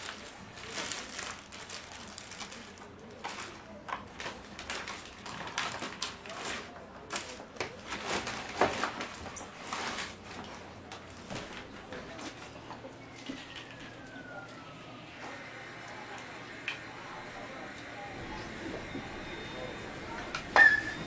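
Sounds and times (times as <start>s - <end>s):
paper wrappers rustling: 0.0s - 14.2s.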